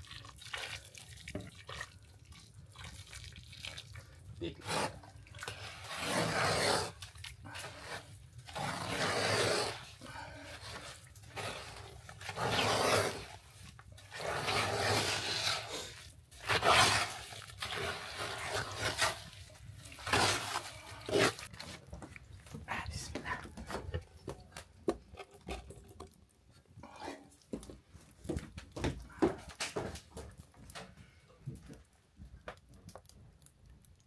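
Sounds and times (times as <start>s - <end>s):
spoon scraping sugar in pot: 4.5s - 21.7s.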